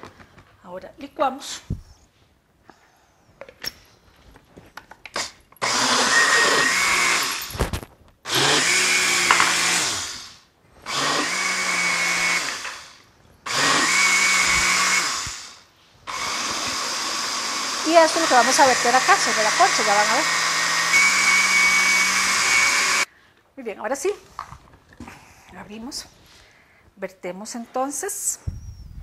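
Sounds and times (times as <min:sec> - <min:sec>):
blender motor whine: 0:05.2 - 0:07.6, 0:08.3 - 0:23.1.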